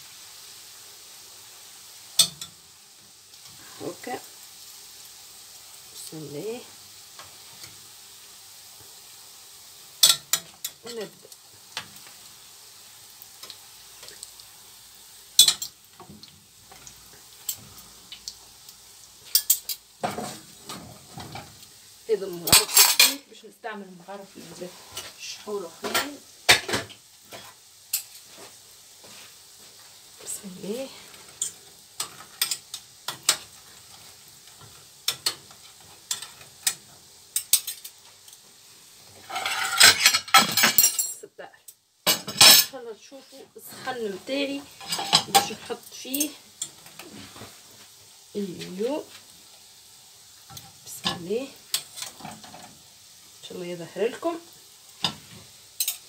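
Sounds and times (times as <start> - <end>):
doughnuts sizzling in hot oil: 0.0 - 56.0
metal fork clinking on pan: 10.0 - 10.8, 15.4 - 15.7, 55.8 - 56.0.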